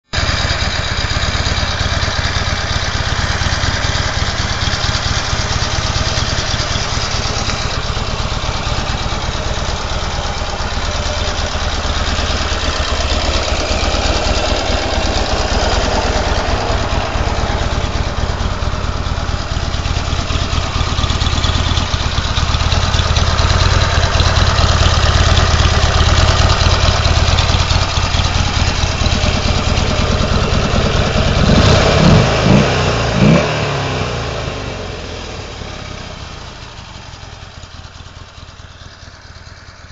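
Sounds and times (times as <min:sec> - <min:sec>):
motorcycle engine idling: 0:00.1 - 0:39.9.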